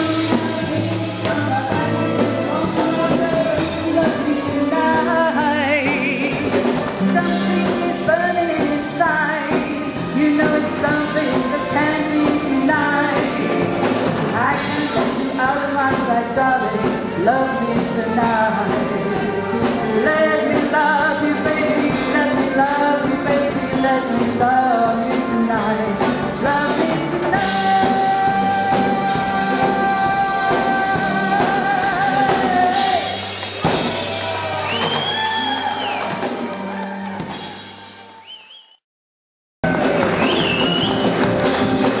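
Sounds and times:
woman singing into a microphone: 0.0s - 33.2s
live band with drums: 0.0s - 38.2s, 39.6s - 42.0s.

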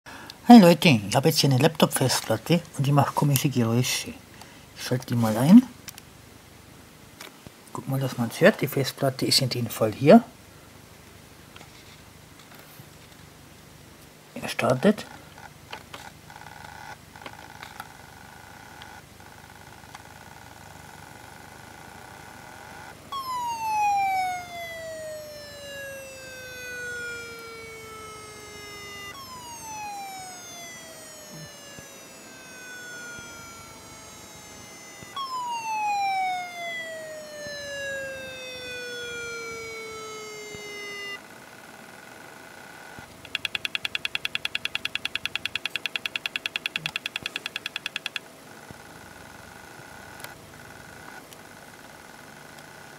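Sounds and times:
hard drive whine sliding down: 16.3s - 52.9s
hard drive clicking: 43.0s - 49.4s.

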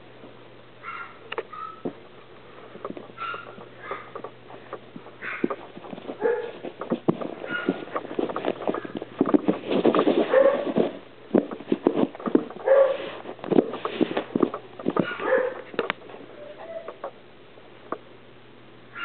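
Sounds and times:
scuffling and knocking: 1.8s - 16.3s.

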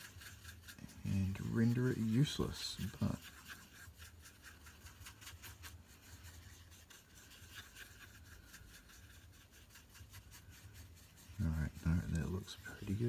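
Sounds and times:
paintbrush scratching on palette: 0.0s - 13.0s.

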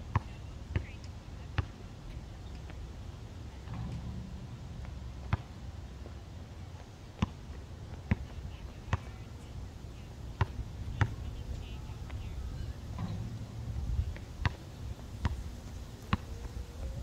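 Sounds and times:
basketball bouncing on court: 0.1s - 1.0s, 3.7s - 5.6s, 7.2s - 7.4s, 8.0s - 9.2s, 10.4s - 11.3s
low rumble: 2.2s - 6.6s, 10.1s - 17.0s.

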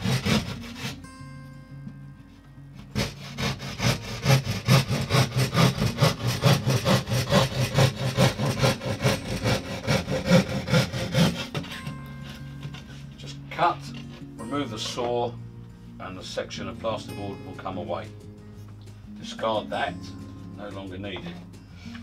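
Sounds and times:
hand saw rasping through plasterboard: 0.0s - 1.0s, 2.9s - 13.0s.

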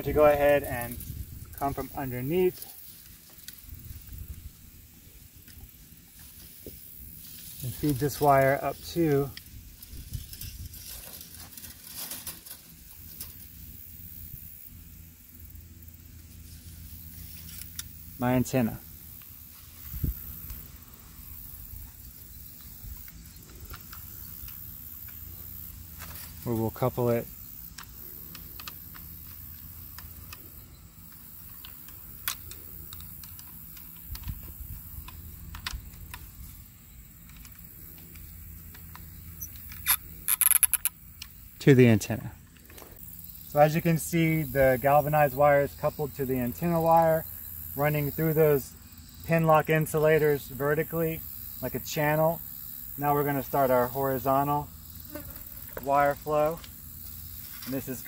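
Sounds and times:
leaves brushing: 0.0s - 15.4s, 16.0s - 30.3s, 49.4s - 58.0s
low steady hum: 0.0s - 58.0s
wire scraping through insulators: 6.2s - 13.7s, 37.3s - 41.0s.

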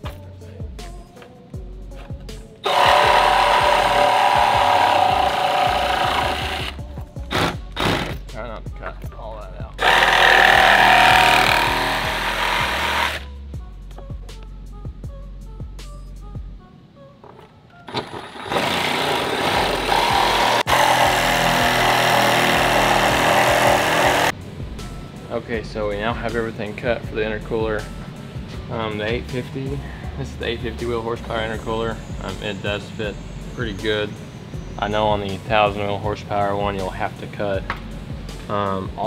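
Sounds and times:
reciprocating saw cutting: 2.6s - 8.2s, 9.8s - 13.3s, 17.9s - 24.3s.

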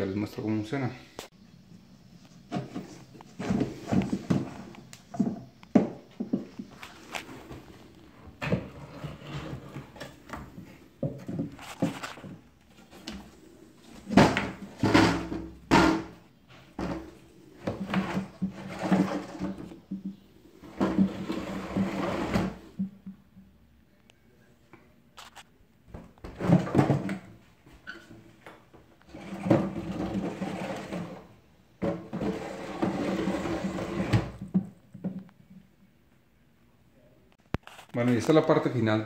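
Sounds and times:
wooden sash sliding and scraping: 6.2s - 22.8s, 29.1s - 34.5s.

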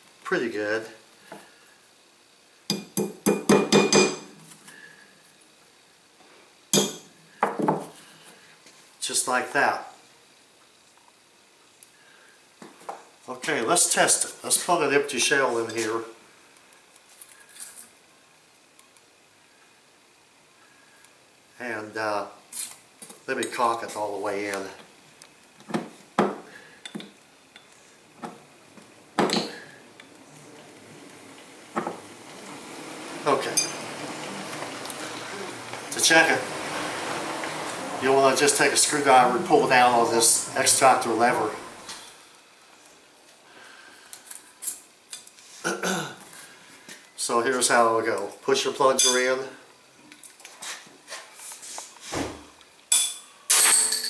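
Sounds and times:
hammer tapping metal punch: 2.7s - 4.3s.

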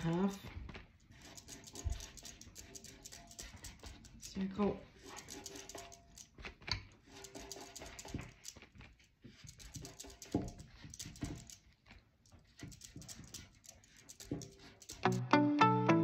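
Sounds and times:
background music: 15.0s - 16.0s.

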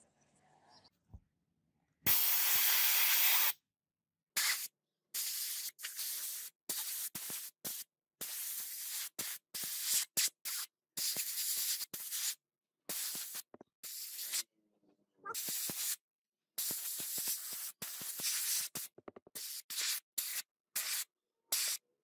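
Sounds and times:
soda blaster hissing: 2.1s - 3.6s.

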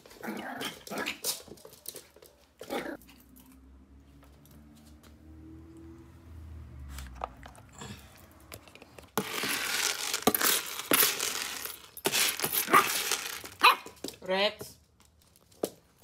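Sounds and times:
dry kibble rattling in tub: 9.2s - 14.2s.

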